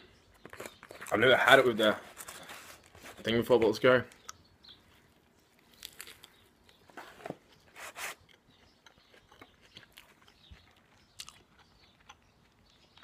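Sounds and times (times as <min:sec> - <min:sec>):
crunch and rustle: 0:00.3 - 0:13.0
person chewing: 0:05.5 - 0:06.8, 0:07.6 - 0:13.0.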